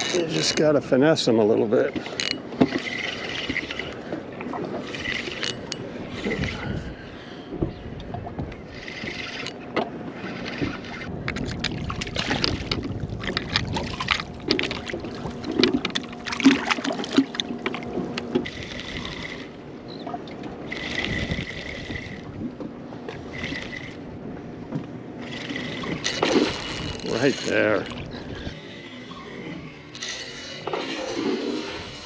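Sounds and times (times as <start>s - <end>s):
rod and reel handling clicks: 0.0s - 0.7s, 2.0s - 4.0s, 4.7s - 6.8s, 8.7s - 11.8s, 25.2s - 28.1s, 29.9s - 32.0s
spinning reel whirring: 0.0s - 0.8s, 2.1s - 4.0s, 4.7s - 6.8s, 8.6s - 9.6s, 10.2s - 11.1s, 18.2s - 19.6s, 20.6s - 22.3s, 23.1s - 24.1s, 25.2s - 32.0s.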